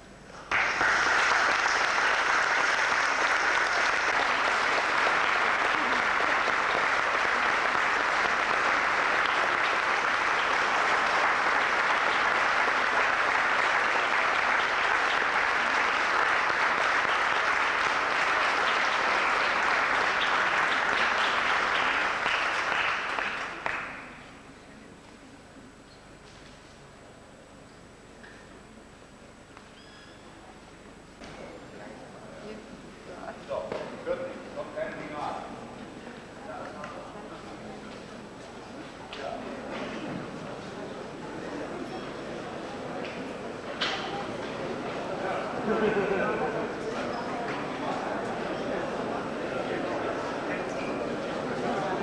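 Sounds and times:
audience applauding: 0.4s - 24.3s.

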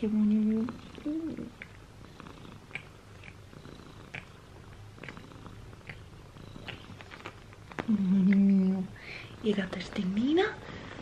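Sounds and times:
cat purring: 0.0s - 11.0s.

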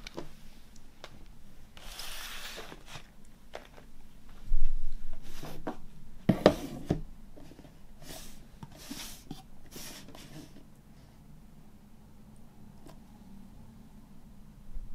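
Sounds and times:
cardboard sliding on wood: 1.8s - 3.1s, 8.0s - 10.6s.

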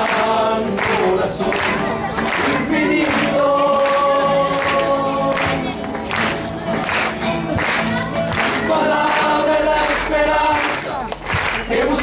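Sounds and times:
male choir singing: 0.0s - 5.7s, 8.6s - 12.0s
acoustic guitar: 0.0s - 12.0s.

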